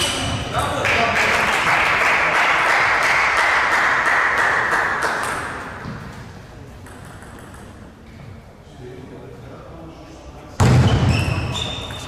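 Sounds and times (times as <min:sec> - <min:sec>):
spectators applauding: 0:00.8 - 0:05.3.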